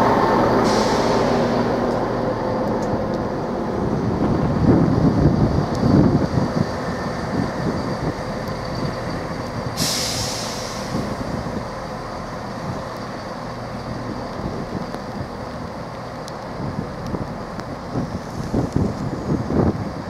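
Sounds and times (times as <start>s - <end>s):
diesel train engines rumbling: 0.0s - 20.0s
air brakes hissing: 0.6s - 1.8s, 9.7s - 11.4s.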